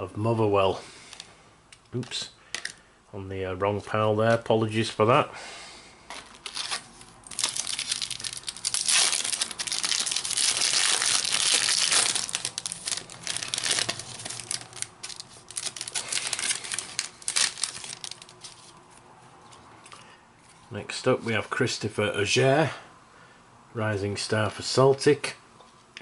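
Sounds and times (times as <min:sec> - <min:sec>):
wrapper tearing and crinkling: 0:06.1 - 0:18.8.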